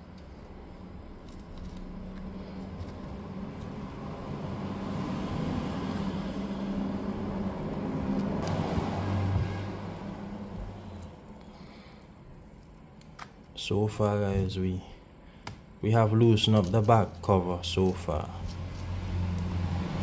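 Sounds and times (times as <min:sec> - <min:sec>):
vehicle passing by: 0:01.9 - 0:11.8, 0:17.8 - 0:20.0.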